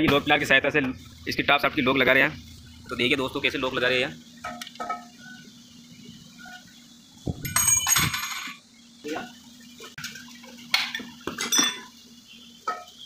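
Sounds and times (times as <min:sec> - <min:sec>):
sharp metal clinks: 0:07.3 - 0:08.6
metal tools clattering and scraping: 0:07.4 - 0:08.6, 0:11.4 - 0:11.9.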